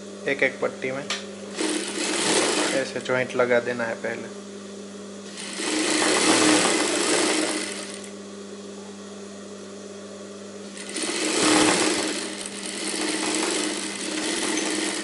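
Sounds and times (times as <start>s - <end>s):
sewing machine stitching: 1.5s - 3.0s, 5.3s - 8.1s, 10.7s - 15.0s
sewing machine motor humming: 1.5s - 3.2s, 5.2s - 8.2s, 10.6s - 15.0s.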